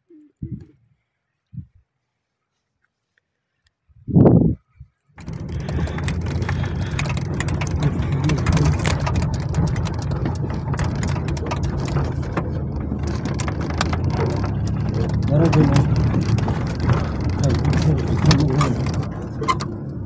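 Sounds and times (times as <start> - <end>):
rattles and knocks in cabin: 5.2 - 20.0
vehicle engine and road rumble: 5.2 - 20.0.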